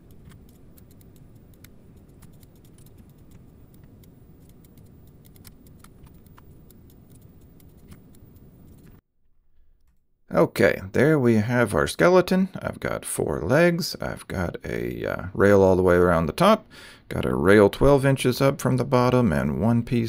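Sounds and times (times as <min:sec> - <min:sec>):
computer mouse clicks: 0:00.0 - 0:09.0
keystrokes: 0:00.0 - 0:09.0.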